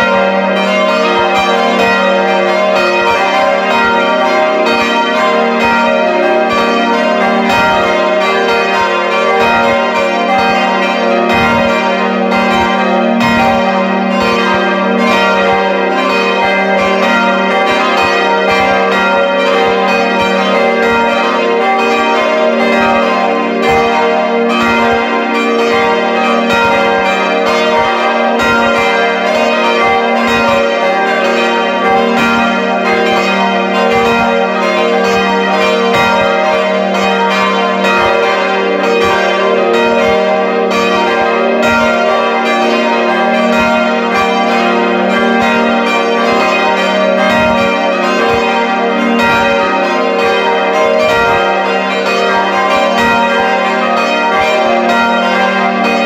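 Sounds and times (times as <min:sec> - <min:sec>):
church bells pealing: 0:00.0 - 0:56.0.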